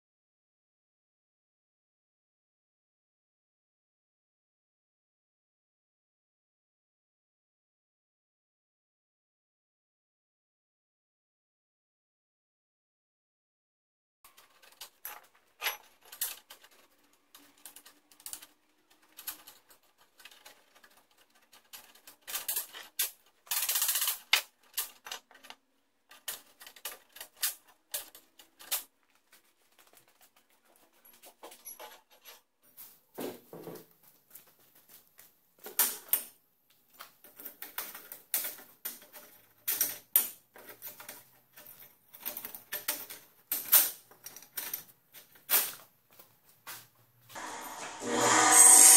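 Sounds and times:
metal scraping: 0:47.4 - 0:48.9.

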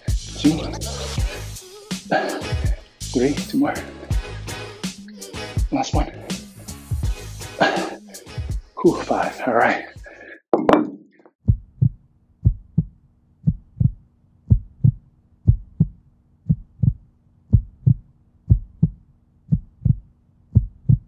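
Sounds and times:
heartbeat thumps: 0:11.4 - 0:21.0.

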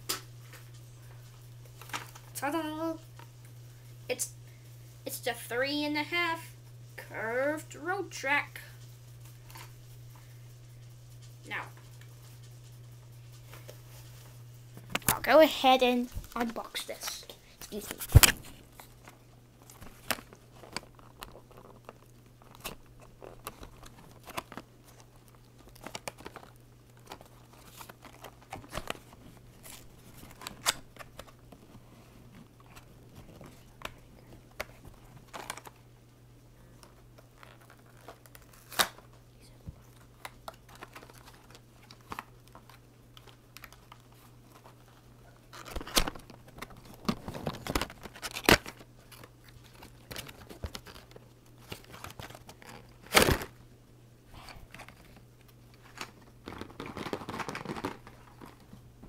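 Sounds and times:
faint low hum: 0:00.0 - 0:59.0
plastic crinkling: 0:16.0 - 0:35.9, 0:36.8 - 0:39.2, 0:39.8 - 0:53.6, 0:54.4 - 0:58.8
cardboard tearing: 0:37.4 - 0:39.0, 0:51.7 - 0:53.5.

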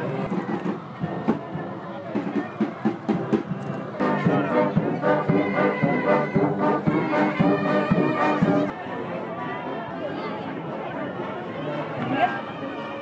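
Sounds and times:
steady drum beat: 0:00.0 - 0:08.7
brass horns playing melody: 0:04.0 - 0:08.7.

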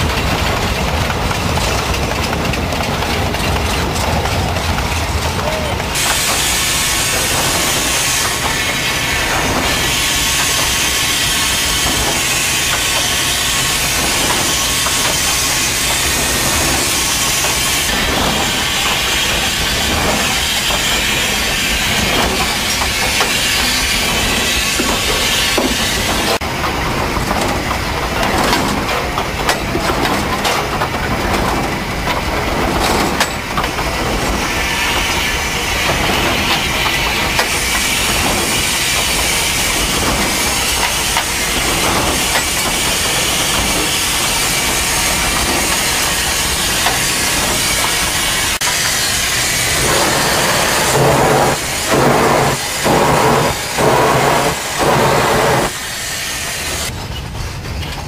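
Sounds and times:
locomotive exhaust beats: 0:00.0 - 0:57.9
locomotive engine rumble: 0:00.0 - 0:58.0
steam hissing: 0:05.4 - 0:26.4, 0:31.6 - 0:57.0.

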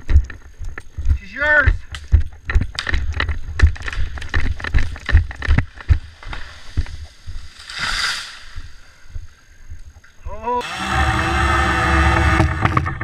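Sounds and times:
thumps and knocks: 0:00.0 - 0:07.0, 0:12.1 - 0:13.0
rustling hiss: 0:03.4 - 0:10.0.

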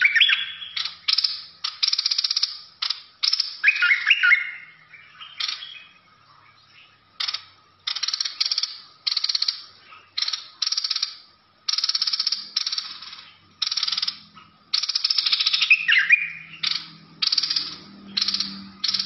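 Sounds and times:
bird rattling chatter: 0:07.2 - 0:09.6, 0:10.2 - 0:15.4, 0:16.6 - 0:19.0.

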